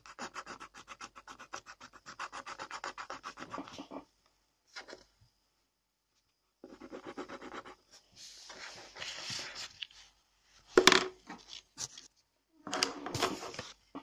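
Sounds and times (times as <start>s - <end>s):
scratching on drawing paper: 0.0s - 4.0s, 6.6s - 10.0s
paper being moved: 8.2s - 10.1s, 12.8s - 13.8s.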